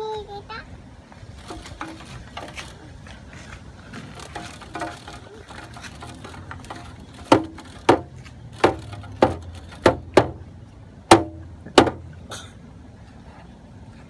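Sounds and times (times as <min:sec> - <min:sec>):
sharp ringing knocks: 0:06.5 - 0:10.4, 0:11.1 - 0:12.0.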